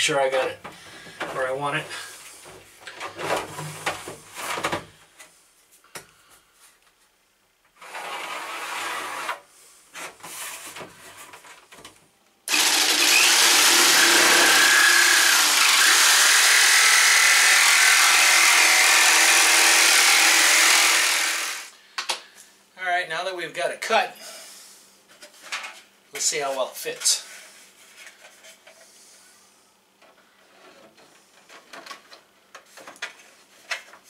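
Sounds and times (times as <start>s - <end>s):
jigsaw cutting plastic: 12.5s - 21.7s.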